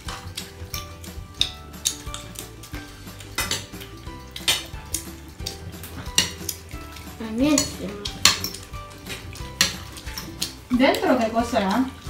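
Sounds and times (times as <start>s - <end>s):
tableware clinking: 3.2s - 5.0s, 5.8s - 10.6s.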